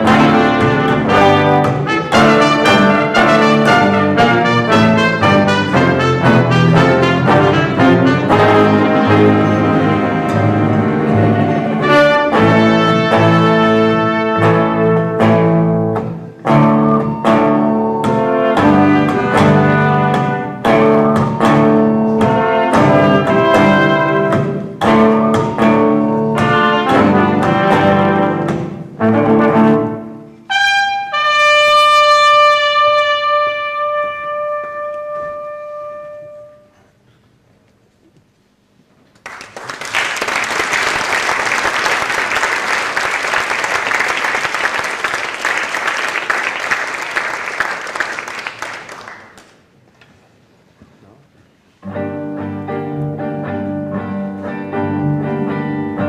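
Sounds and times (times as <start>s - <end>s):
live band with brass chords: 0.0s - 36.8s
audience applause: 39.2s - 49.8s.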